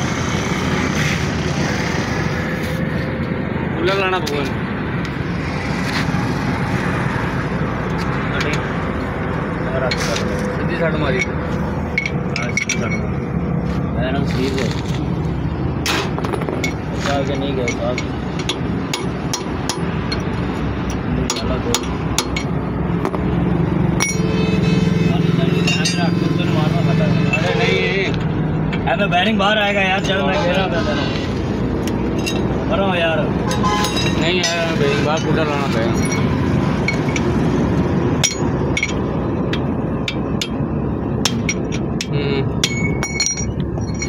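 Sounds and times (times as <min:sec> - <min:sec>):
hammer striking metal: 0:17.6 - 0:23.2, 0:24.0 - 0:24.4, 0:38.2 - 0:40.6, 0:41.2 - 0:44.0.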